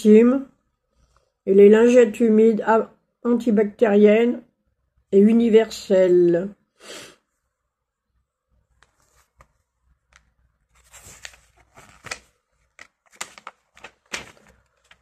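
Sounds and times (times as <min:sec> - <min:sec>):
paper pages rustling: 0:08.7 - 0:15.0.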